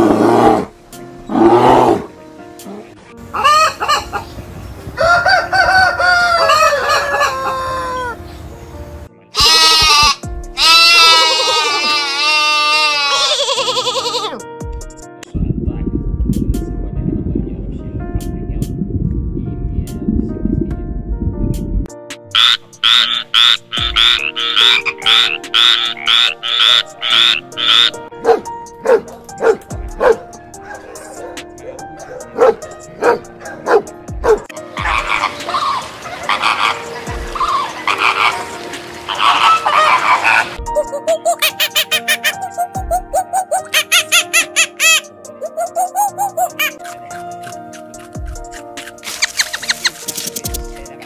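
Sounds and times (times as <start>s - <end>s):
hens clucking: 3.4s - 4.4s, 22.4s - 28.0s, 34.8s - 49.9s
rooster crowing: 5.0s - 8.2s
loud bleat: 9.3s - 14.4s
frog croaking: 22.3s - 28.1s, 34.7s - 40.6s
dog whining yips: 39.2s - 46.9s.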